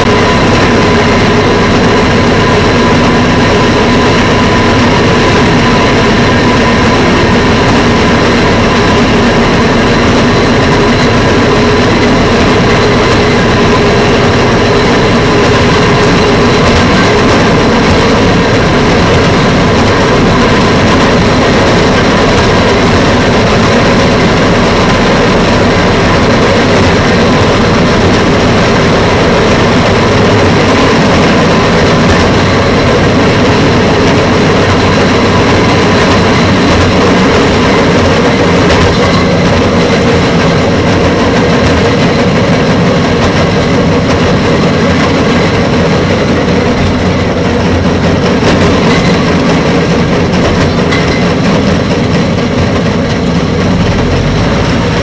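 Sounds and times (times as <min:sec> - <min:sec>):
rail vehicle engine running: 0:00.0 - 0:55.0.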